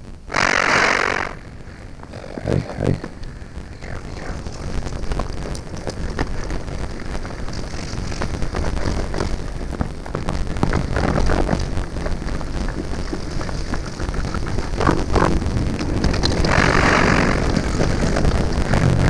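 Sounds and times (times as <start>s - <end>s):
wind rumble on microphone: 0.0s - 19.0s
bike rattling over stones: 4.5s - 19.0s
loud hiss: 16.5s - 18.8s.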